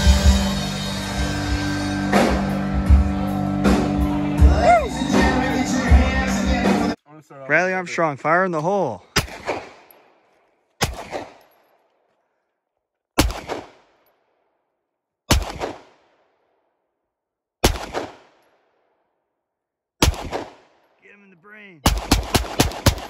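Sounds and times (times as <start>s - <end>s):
rifle shots echoing: 9.0s - 11.9s, 13.2s - 14.1s, 15.3s - 16.4s, 17.6s - 18.8s, 20.0s - 21.0s, 21.8s - 23.0s.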